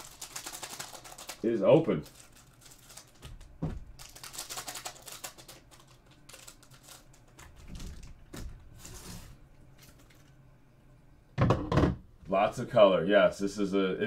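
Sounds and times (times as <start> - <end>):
foil packs crinkling: 0.0 - 10.3.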